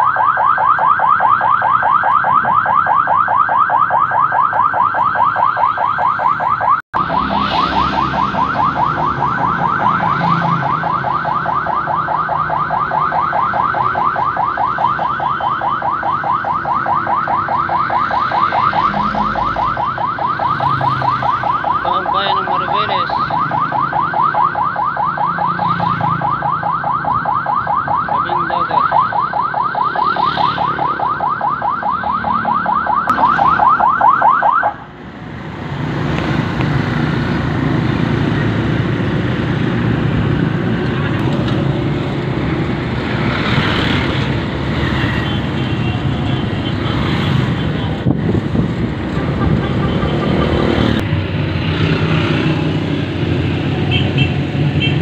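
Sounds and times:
vehicle siren fast yelp: 0.0s - 34.9s.

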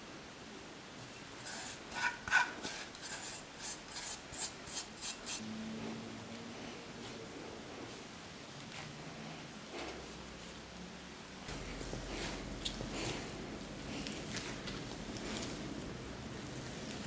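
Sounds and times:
fingers scraping dough from bowl: 1.4s - 5.4s.

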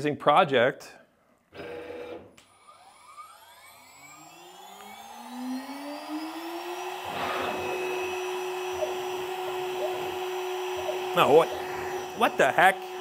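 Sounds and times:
router spindle whine: 2.6s - 13.0s.

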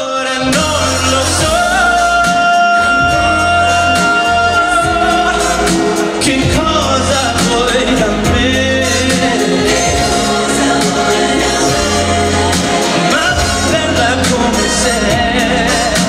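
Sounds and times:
band accompaniment with bass: 0.0s - 16.0s
man singing into microphone: 0.0s - 16.0s.

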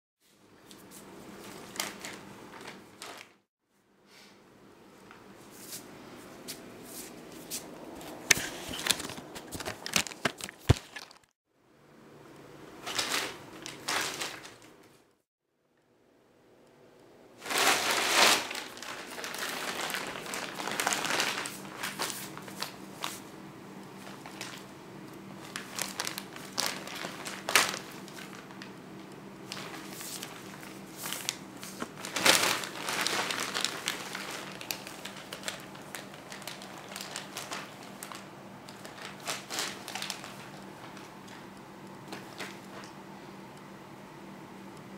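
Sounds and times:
plastic bag crinkling and rustling: 1.3s - 3.4s, 8.0s - 11.3s, 12.8s - 15.0s, 17.4s - 43.0s.

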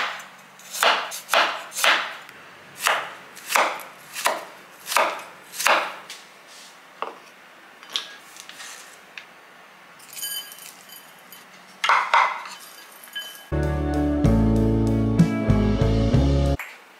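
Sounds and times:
cleaver chopping on wooden board: 0.8s - 2.2s, 2.8s - 6.0s
clinks in a ceramic bowl: 10.0s - 11.5s, 12.4s - 13.5s.

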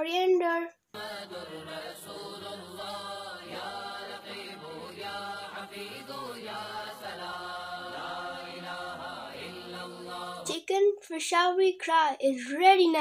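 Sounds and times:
chanted singing voices: 0.9s - 10.5s.

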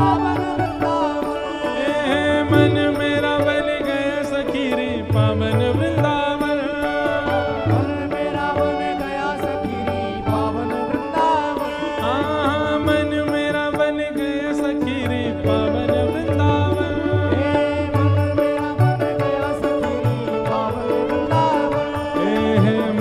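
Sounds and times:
hand-drum beat: 14.9s - 23.0s.

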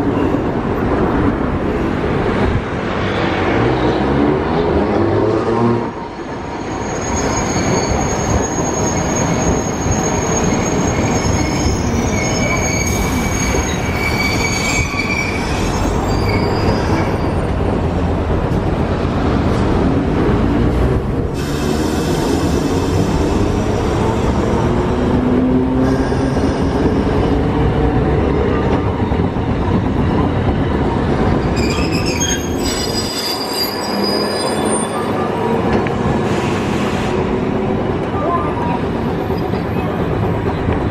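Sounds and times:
tram low rumble: 0.0s - 40.9s
high-pitched brake squeal: 6.4s - 17.5s, 31.5s - 35.3s.

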